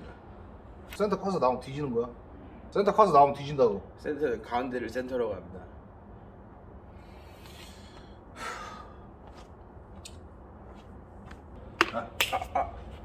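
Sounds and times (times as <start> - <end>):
faint background hum: 0.0 - 13.0
man sighing: 8.4 - 9.0.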